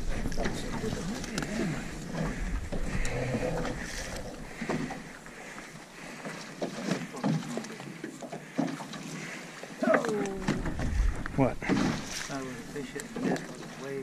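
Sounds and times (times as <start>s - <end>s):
fishing net rustling and knocking: 10.0s - 13.7s
wind rumble on microphone: 10.5s - 11.7s.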